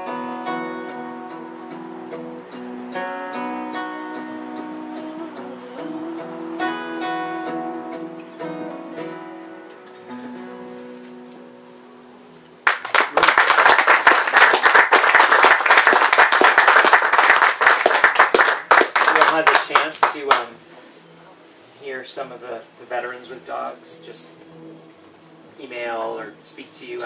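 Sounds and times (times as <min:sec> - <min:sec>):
acoustic guitar song: 0:00.0 - 0:12.6
audience applause: 0:12.6 - 0:20.4.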